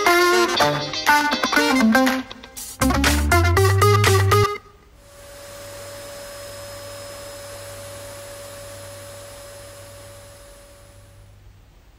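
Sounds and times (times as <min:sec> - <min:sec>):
robot vacuum motor whine: 0:05.0 - 0:11.3.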